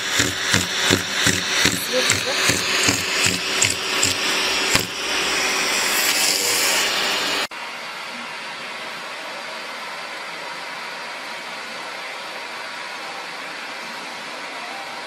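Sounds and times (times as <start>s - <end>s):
vacuum cleaner hissing: 0.0s - 7.5s.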